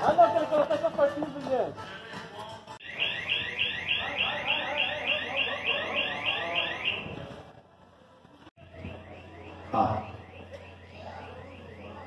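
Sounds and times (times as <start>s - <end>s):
electronic alarm chirps: 2.8s - 7.1s.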